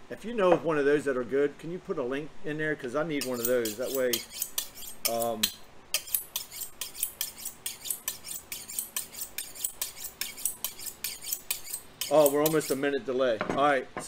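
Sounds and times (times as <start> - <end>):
knife scraping on honing rod: 3.2 - 12.9.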